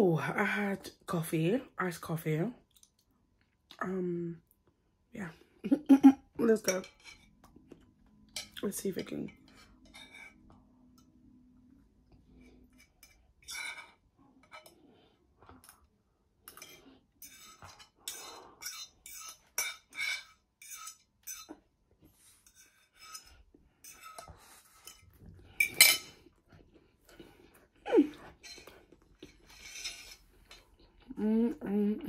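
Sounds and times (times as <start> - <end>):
metal spoon scraping bowl: 6.6 - 7.4, 8.4 - 11.1, 12.4 - 14.9, 16.5 - 21.6, 22.3 - 26.2, 28.3 - 30.7.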